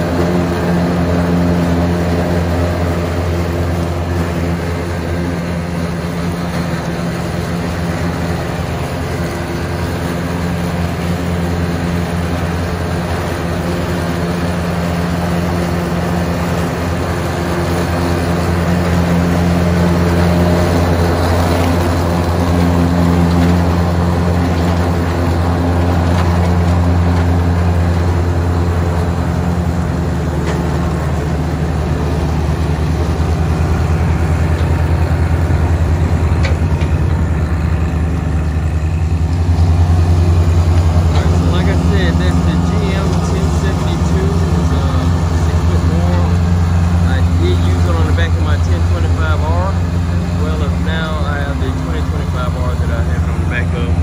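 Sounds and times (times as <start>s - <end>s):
mower cutting grass: 0.0s - 54.0s
tractor diesel engine under load: 0.0s - 54.0s.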